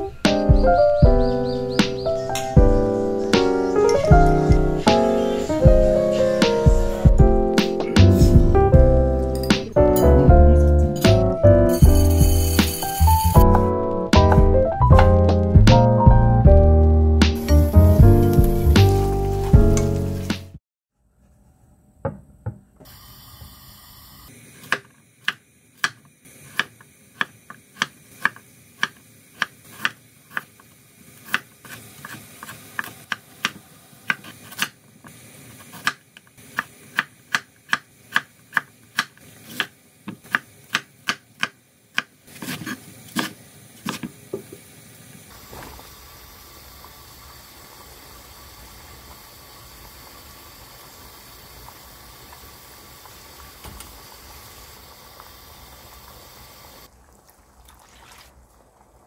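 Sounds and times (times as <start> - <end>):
water bubbling at a boil: 45.3 - 59.0.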